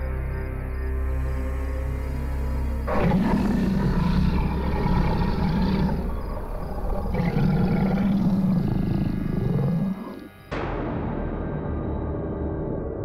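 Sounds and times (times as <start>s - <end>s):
deep creature roar: 2.9s - 10.3s.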